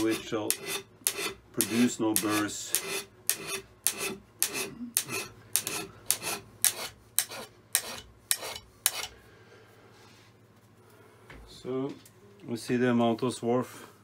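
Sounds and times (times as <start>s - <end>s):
hand scraper rasping on iron: 0.0s - 9.2s.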